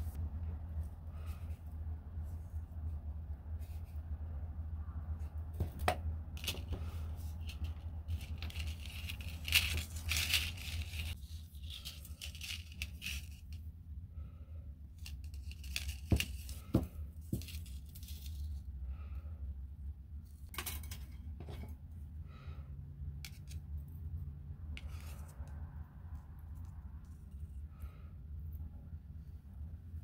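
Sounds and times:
steady low hum: 0.0 - 30.0
scratchy rustling of tape: 6.4 - 13.6.

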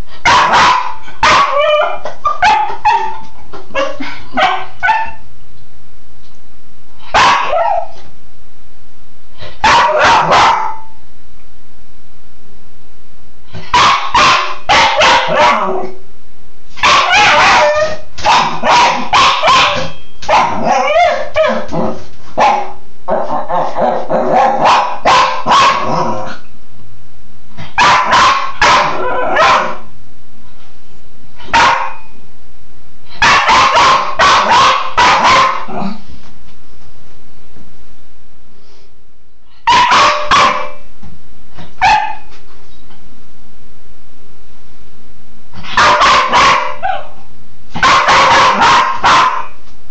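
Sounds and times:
dog barking: 0.2 - 5.2, 7.0 - 8.0, 9.6 - 10.9, 13.6 - 15.9, 16.8 - 21.7, 22.4 - 26.1, 27.6 - 29.9, 31.4 - 32.1, 33.2 - 35.9, 39.6 - 40.8, 41.8 - 42.3, 45.6 - 47.2, 47.8 - 49.6.

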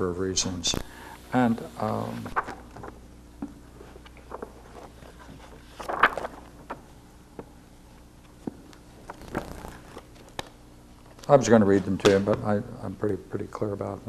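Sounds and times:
faint low hum: 0.0 - 14.0
paper rustling: 2.1 - 3.0, 3.8 - 6.9, 9.0 - 10.5.

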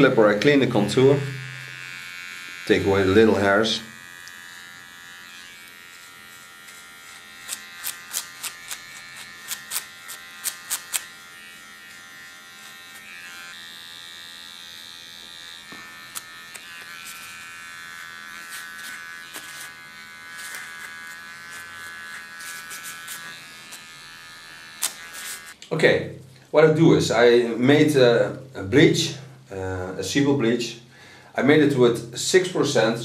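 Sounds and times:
electric hair clipper buzzing: 0.0 - 25.6.

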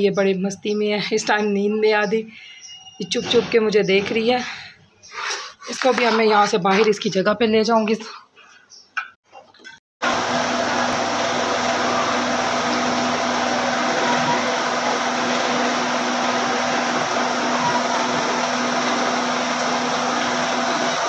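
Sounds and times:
vacuum cleaner running: 10.0 - 21.0.

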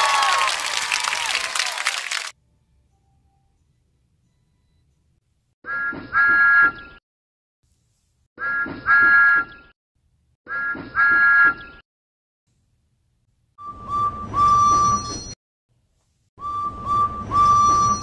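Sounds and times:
lower single-note whistle: 13.6 - 15.4, 16.4 - 18.0.

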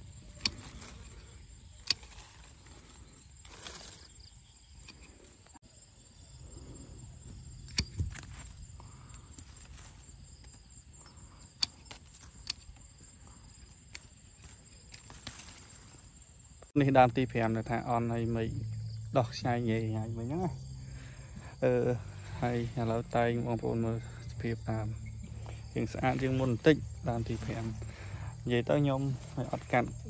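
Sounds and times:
pruning shears snipping branches: 0.0 - 4.2, 7.5 - 16.1.

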